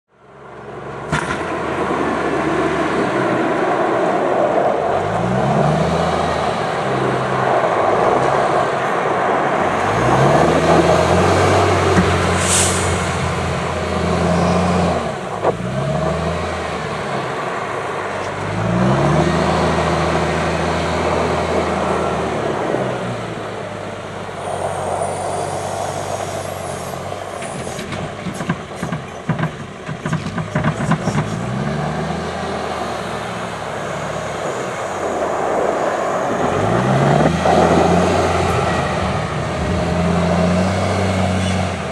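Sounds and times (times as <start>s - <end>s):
diesel engine revving: 0.3s - 41.9s
short high hiss: 12.4s - 13.2s.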